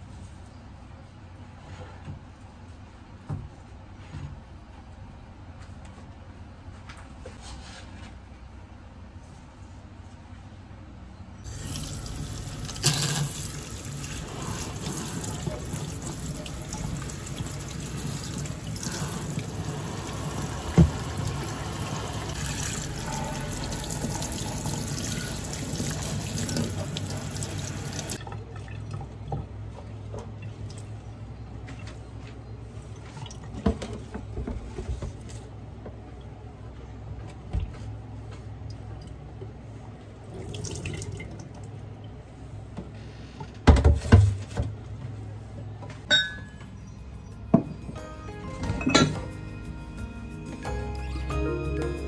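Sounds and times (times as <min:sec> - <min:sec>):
tap water running into sink: 0:11.5 - 0:28.2.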